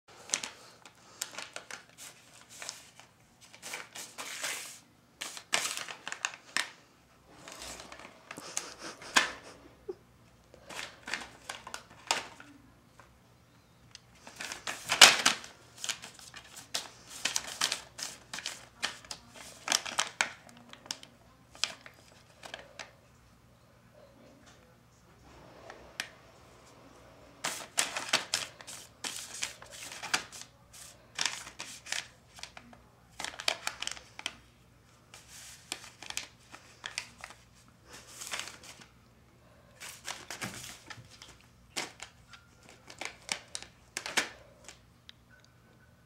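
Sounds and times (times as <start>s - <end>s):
plastic bag crinkling: 39.8s - 44.8s.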